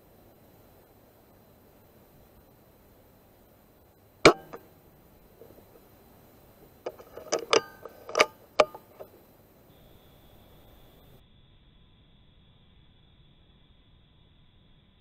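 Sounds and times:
air rifle firing crack: 0:04.2 - 0:05.6
metallic lever clicks: 0:04.3 - 0:04.8, 0:06.8 - 0:09.2.

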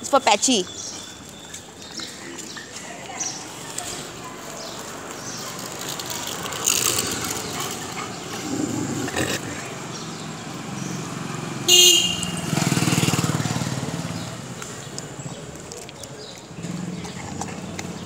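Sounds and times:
street noise: 0:00.0 - 0:18.0
vehicle horn honking: 0:11.7 - 0:12.6.

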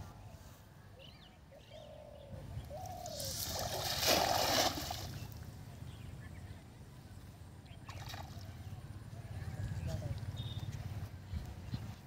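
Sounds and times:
bird cooing: 0:01.5 - 0:03.4
net splashing on water: 0:03.2 - 0:05.2.

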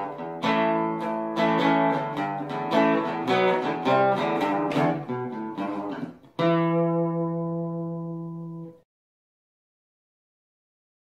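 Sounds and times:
acoustic guitar plucked notes: 0:00.0 - 0:08.8.

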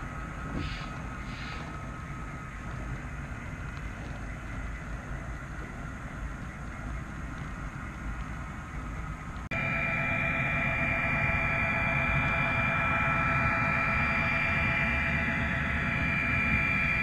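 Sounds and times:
ambient background music: 0:00.0 - 0:17.0.

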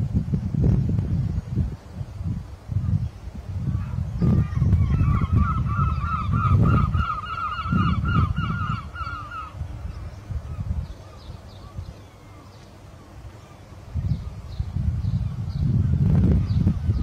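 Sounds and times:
geese honking: 0:04.8 - 0:09.6.

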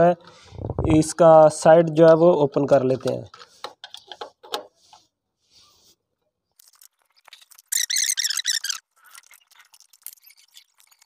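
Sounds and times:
high-pitched chirping: 0:07.7 - 0:08.8.

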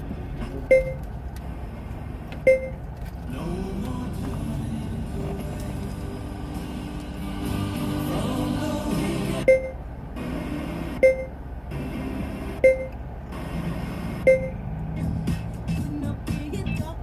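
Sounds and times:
low in-car hum: 0:00.0 - 0:17.0
short electronic beeps: 0:00.7 - 0:01.0, 0:02.4 - 0:02.8, 0:09.4 - 0:09.8, 0:11.0 - 0:11.4, 0:12.6 - 0:13.0, 0:14.2 - 0:14.6.

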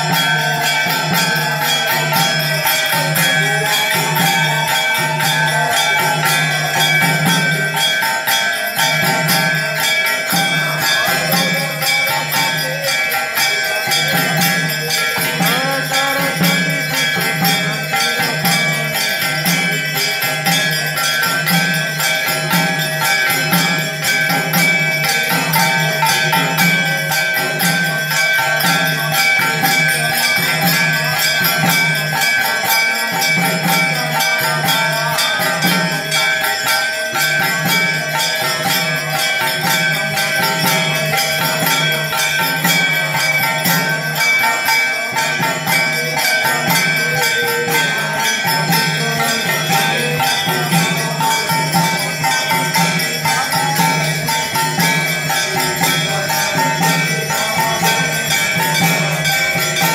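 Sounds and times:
bell rung rapidly: 0:00.0 - 0:59.9.

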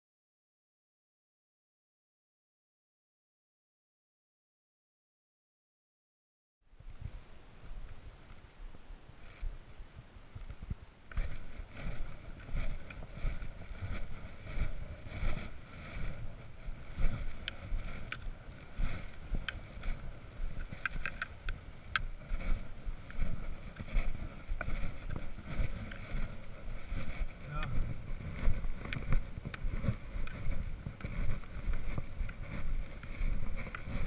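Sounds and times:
trekking poles clicking on stones: 0:10.4 - 0:34.0.

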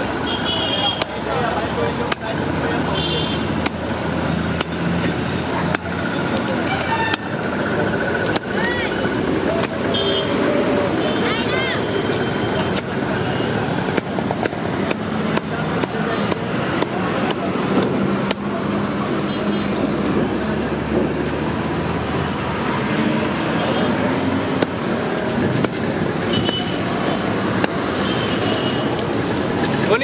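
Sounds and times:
street traffic: 0:00.0 - 0:30.0
knife chopping on wooden block: 0:13.9 - 0:18.4.

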